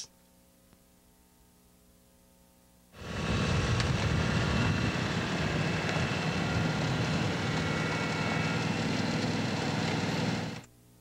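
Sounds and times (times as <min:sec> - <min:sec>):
tractor engine running: 0:03.0 - 0:10.7.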